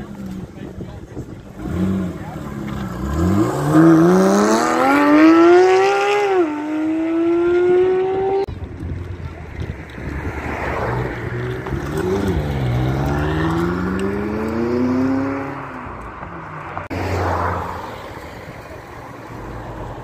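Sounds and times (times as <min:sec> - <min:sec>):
car engine accelerating hard: 0:01.4 - 0:08.5, 0:10.0 - 0:17.6.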